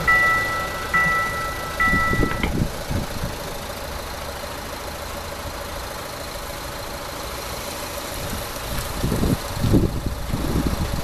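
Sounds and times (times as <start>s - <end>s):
two-tone crossing bell chime: 0.0s - 2.5s
car engine idling: 0.0s - 11.0s.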